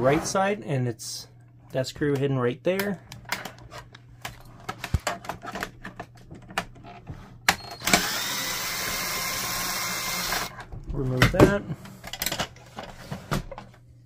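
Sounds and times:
cordless drill running: 7.7s - 10.6s.

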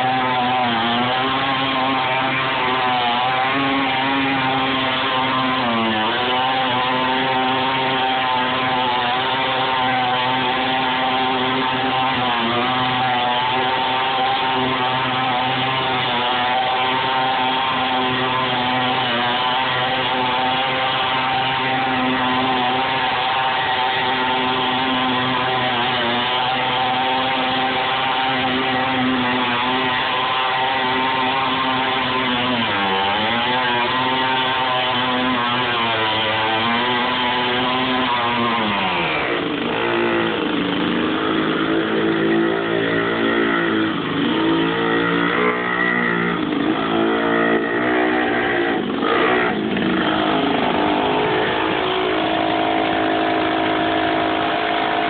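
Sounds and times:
small tractor engine running: 0.0s - 55.0s.

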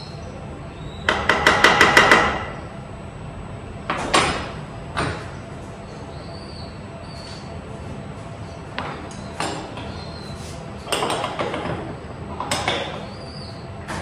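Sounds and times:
sharp knocks on wooden boards: 1.1s - 2.5s.

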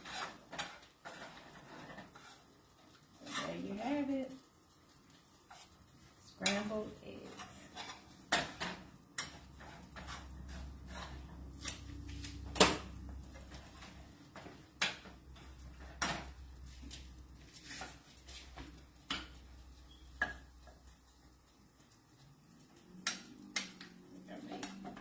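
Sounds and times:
utensil scraping a skillet: 0.0s - 25.0s.

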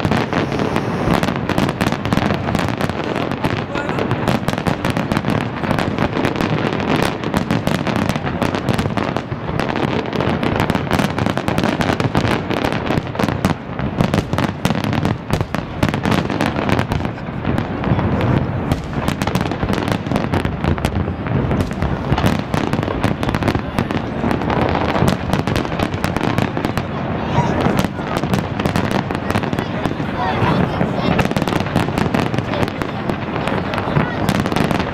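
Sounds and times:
fireworks bursting and crackling: 0.0s - 34.9s.

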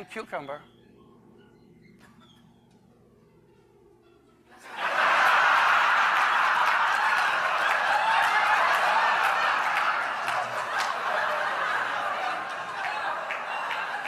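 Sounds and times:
large audience laughing: 4.6s - 14.0s.

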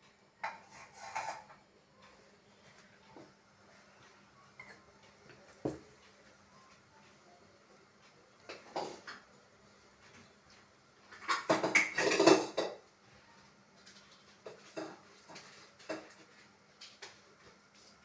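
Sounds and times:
dishes clattering: 0.4s - 1.6s, 8.5s - 9.3s, 11.1s - 12.8s, 14.4s - 16.2s.

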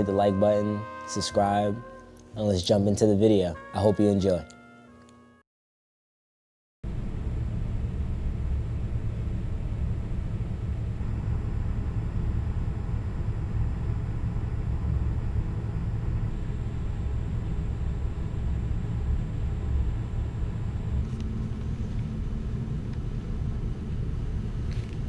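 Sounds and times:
distant city traffic rumble: 6.9s - 25.0s.

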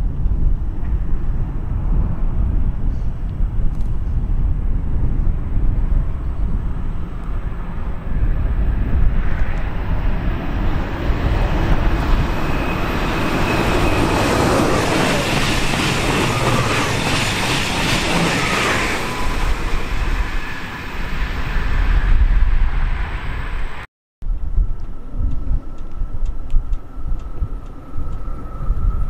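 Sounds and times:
wind rumble on microphone: 0.0s - 29.0s
train wheels rushing on rail: 7.4s - 23.8s
traction motor whine: 9.4s - 21.2s.

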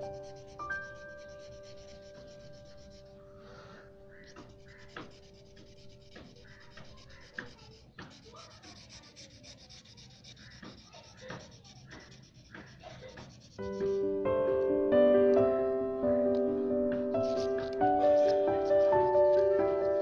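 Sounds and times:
pencil scratching on paper: 0.0s - 14.2s, 17.0s - 20.0s
light pencil taps: 4.2s - 9.0s, 9.8s - 14.7s, 16.3s - 19.6s.

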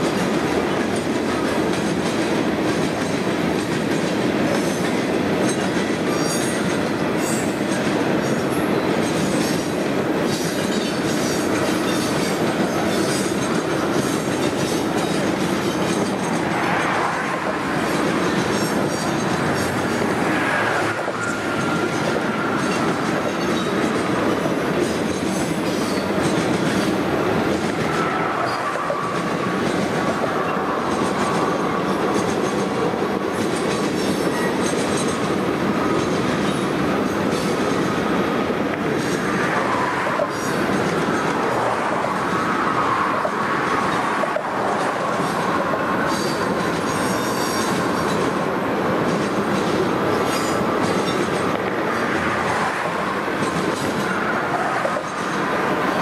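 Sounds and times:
wheels clicking over rail joints: 0.0s - 38.1s, 38.7s - 56.0s
freight train rolling past: 0.0s - 56.0s
high wheel squeal: 10.4s - 24.3s, 27.8s - 29.4s, 39.2s - 48.3s.

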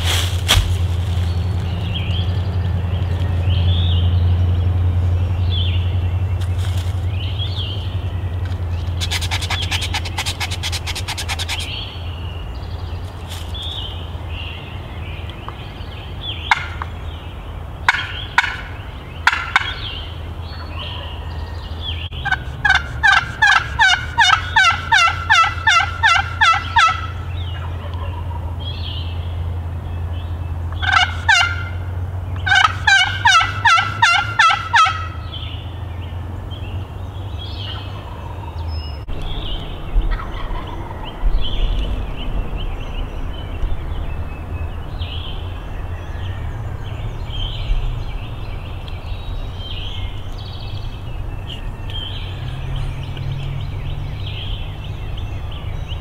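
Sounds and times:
turkey call yelping: 17.9s - 19.9s, 22.2s - 28.6s, 30.8s - 31.8s, 32.4s - 35.2s, 40.0s - 41.3s
faint turkey calls: 17.9s - 28.7s, 30.8s - 31.8s, 39.2s - 42.0s.

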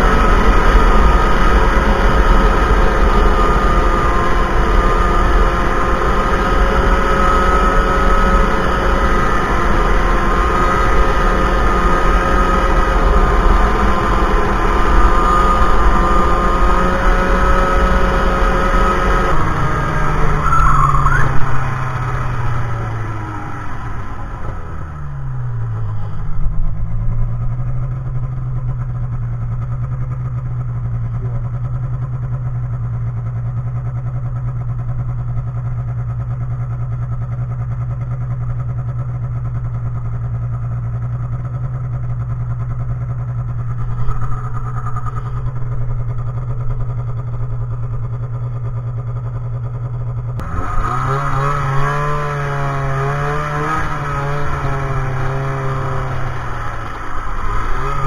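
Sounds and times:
wavering whine: 0.0s - 30.4s, 42.1s - 51.5s, 52.8s - 58.0s
snowmobile engine droning: 0.0s - 58.0s.

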